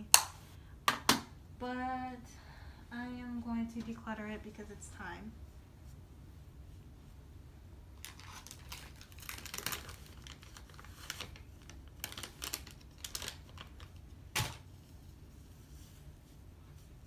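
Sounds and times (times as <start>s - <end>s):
packaging rustling: 8.0s - 14.7s.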